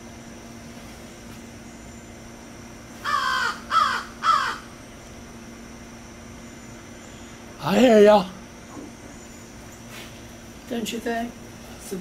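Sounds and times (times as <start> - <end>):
crow cawing: 3.0 - 4.7.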